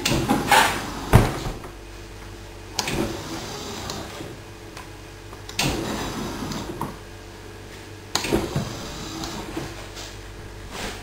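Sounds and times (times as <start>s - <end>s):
electric drive motors whirring: 2.8s - 4.4s, 5.5s - 7.0s, 8.1s - 9.9s.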